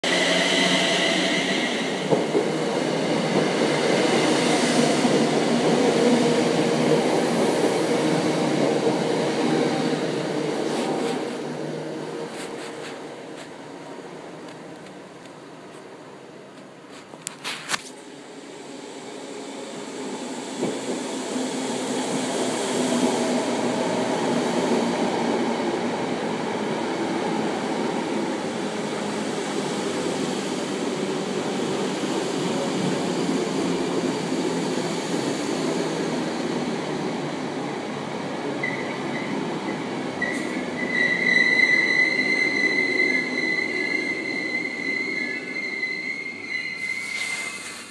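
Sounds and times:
electric train rumble: 0.0s - 15.5s
high steady brake squeal: 38.6s - 47.9s.

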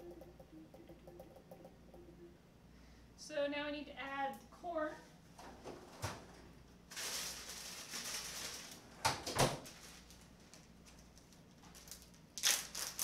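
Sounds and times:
plastic bag crinkling: 6.9s - 8.8s, 9.6s - 13.0s
freezer drawer shutting: 9.0s - 9.7s.

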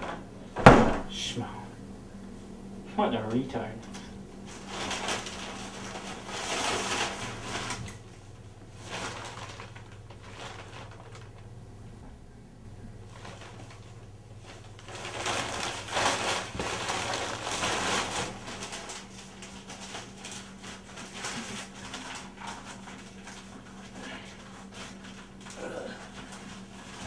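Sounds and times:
low steady hum: 0.0s - 27.0s
paper rustling and crinkling: 3.9s - 11.5s, 13.0s - 27.0s.

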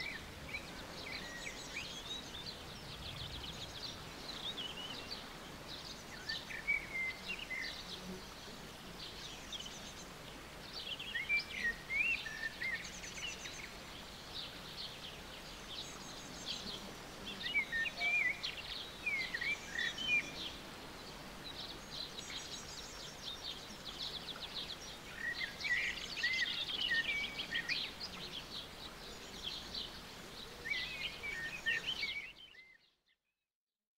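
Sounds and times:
faint outdoor hiss: 0.0s - 33.2s
songbirds singing: 0.0s - 33.2s.

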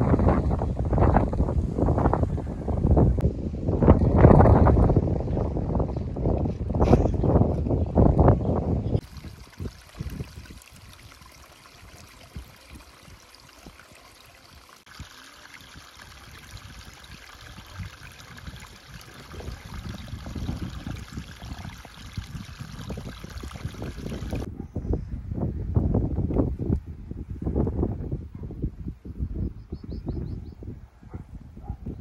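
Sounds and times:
wind rumbling on microphone: 0.0s - 14.1s, 14.9s - 32.0s
running water trickling: 9.0s - 24.5s.

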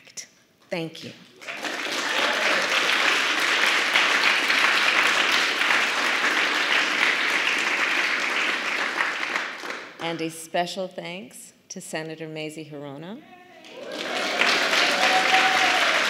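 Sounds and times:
audience applauding: 1.3s - 10.0s, 13.6s - 16.0s.

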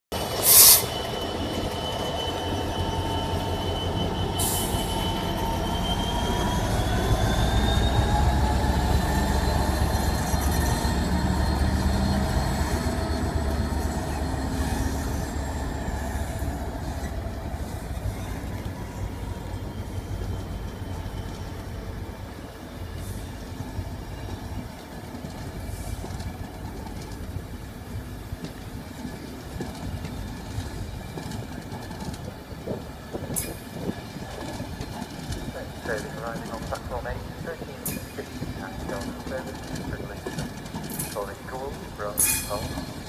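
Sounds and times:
diesel locomotive pulling away: 0.1s - 43.0s
rising engine whine: 1.0s - 21.6s.

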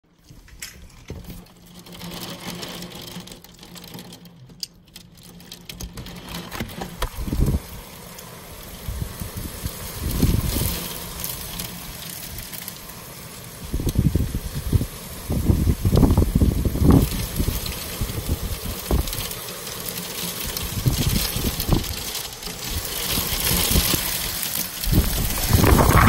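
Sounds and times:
heavy wind gusting outside: 6.8s - 26.0s.

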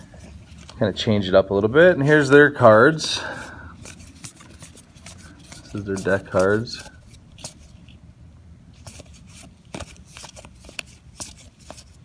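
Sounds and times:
cards flicking and sliding: 3.8s - 7.9s, 8.8s - 12.0s.

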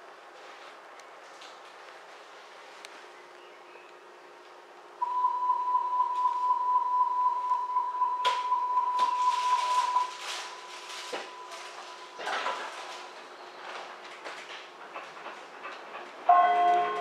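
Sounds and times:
high warning beep: 5.0s - 12.2s
doors closing clatter: 8.2s - 17.0s.

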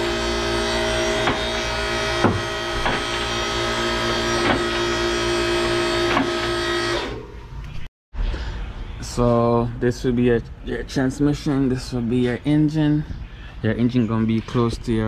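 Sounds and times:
car lift motor running: 0.0s - 7.3s.

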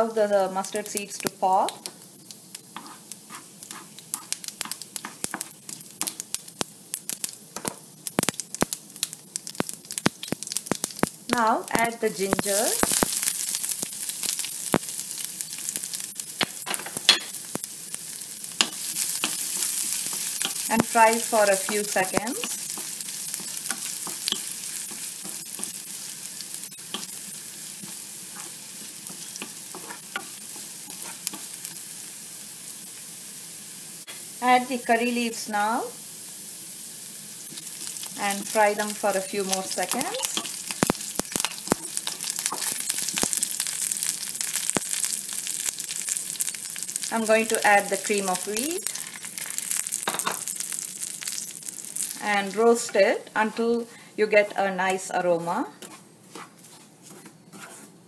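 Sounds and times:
seeds sizzling in hot oil: 0.0s - 58.0s
mustard seeds popping: 0.6s - 11.2s, 12.2s - 31.8s, 37.5s - 52.6s
spatula stirring in pan: 2.6s - 6.3s, 12.5s - 32.0s, 37.5s - 53.0s, 55.4s - 58.0s.

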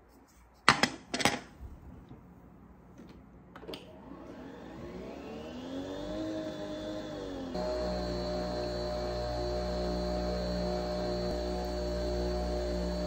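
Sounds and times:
coffee machine motor whining: 3.9s - 13.0s.

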